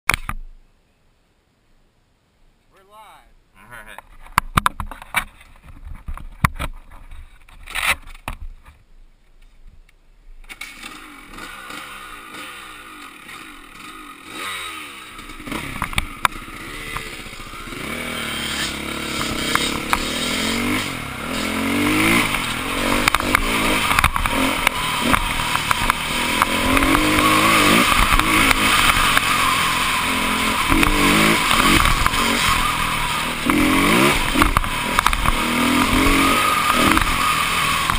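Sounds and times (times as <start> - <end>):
scattered clicks and knocks: 4.0 - 8.8, 22.2 - 27.3, 34.4 - 36.0
dirt bike engine accelerating: 10.4 - 37.9.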